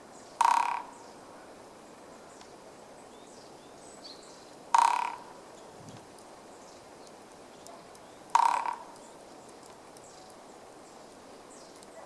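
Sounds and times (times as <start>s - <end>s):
woodpecker drumming on tree: 0.4s - 1.0s, 4.7s - 5.4s, 8.3s - 9.1s.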